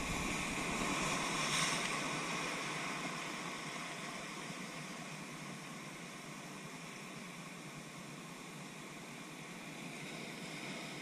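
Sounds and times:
surf breaking on rocks: 0.0s - 3.0s.

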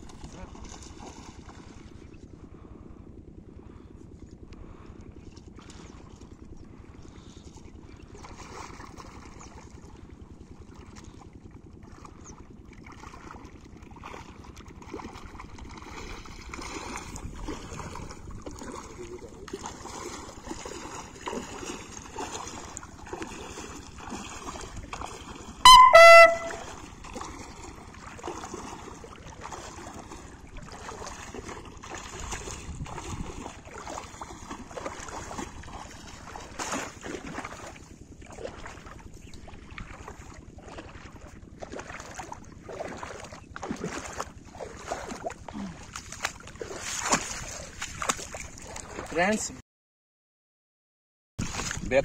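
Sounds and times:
footsteps splashing in water: 0.0s - 2.1s, 5.2s - 6.5s, 7.2s - 49.5s, 51.4s - 51.9s
loud horn-like tone: 25.6s - 26.9s.

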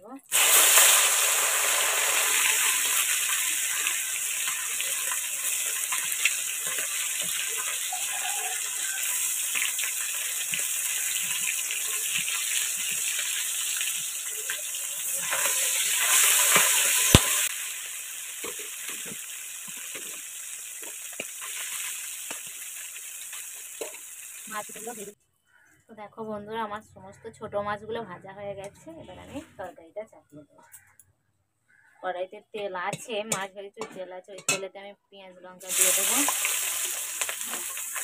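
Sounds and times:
fish sizzling in hot oil: 0.2s - 25.2s, 35.6s - 38.0s.

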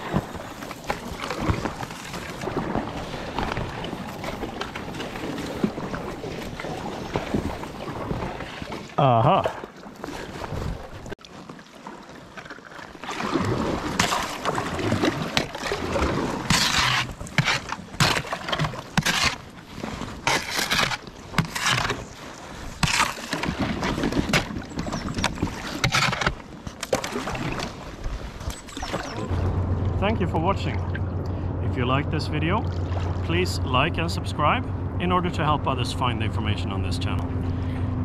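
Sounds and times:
ice crunching against hull: 0.0s - 11.0s, 11.8s - 29.5s
paddle splashes: 0.0s - 30.0s, 32.5s - 33.5s.

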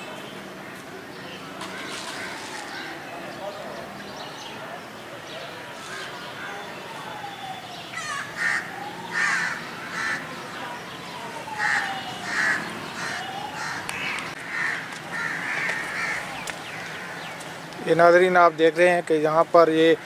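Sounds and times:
crows cawing: 1.6s - 3.0s, 7.9s - 10.3s, 11.6s - 17.6s.

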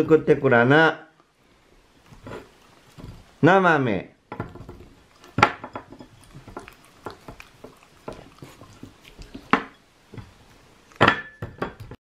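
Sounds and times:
dog sniffing: 6.1s - 10.7s.

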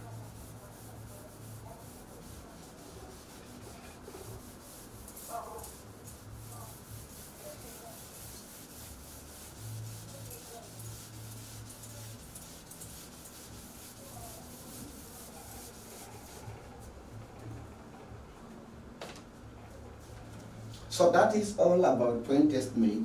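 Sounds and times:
eraser rubbing on chalkboard: 0.0s - 17.0s.

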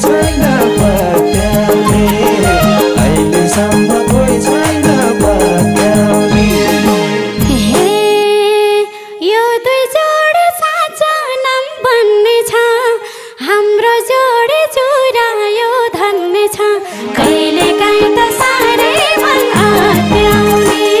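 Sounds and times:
band playing: 0.0s - 8.1s.

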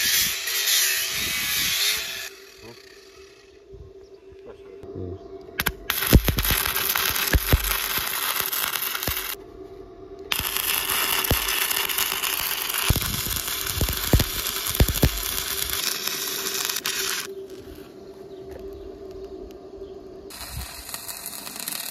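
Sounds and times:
welding arc crackling: 0.0s - 3.5s, 5.6s - 9.4s, 10.3s - 17.9s, 20.3s - 21.9s.

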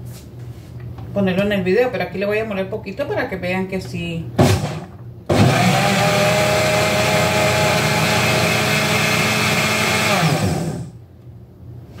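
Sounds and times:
blender running: 4.4s - 11.0s.

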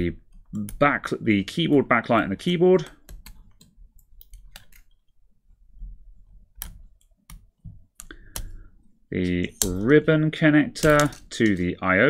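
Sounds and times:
tool clicking on connectors: 10.8s - 11.7s.

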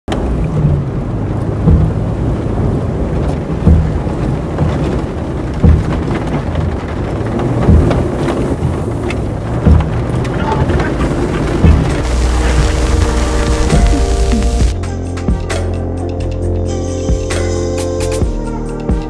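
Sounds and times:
low steady rumble: 0.2s - 10.1s, 11.5s - 14.7s.

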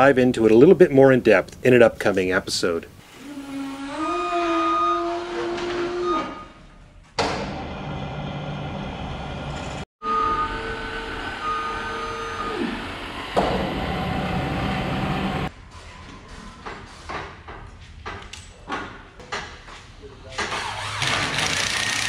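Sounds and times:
boom lift mechanical whining hum: 7.3s - 15.5s.

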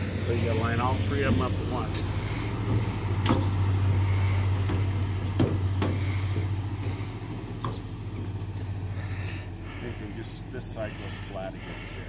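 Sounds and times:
steady low hum: 0.0s - 12.0s
plastic knocking on truck body: 4.7s - 6.0s.

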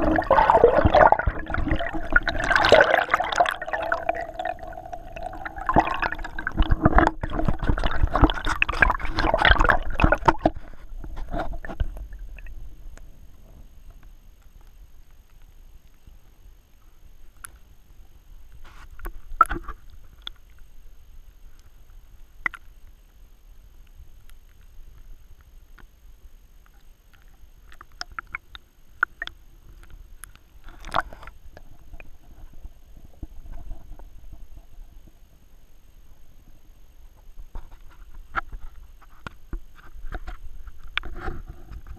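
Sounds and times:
loud water splash: 0.0s - 10.4s
underwater sloshing and bubbling: 0.0s - 41.9s.

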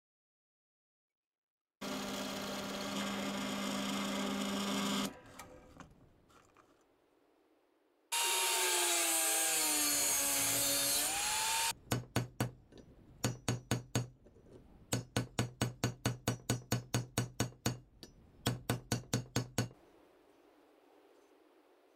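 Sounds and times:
drill press whining: 1.8s - 5.8s
hammer striking rivets on anvil: 11.9s - 14.2s, 14.9s - 19.8s.

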